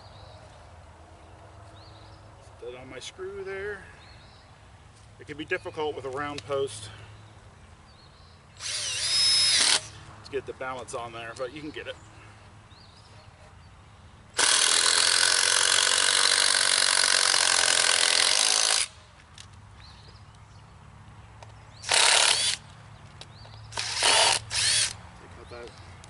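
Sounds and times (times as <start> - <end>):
power drill driving screw into wood: 8.6 - 9.9, 14.4 - 19.0, 21.8 - 22.6, 23.7 - 25.0.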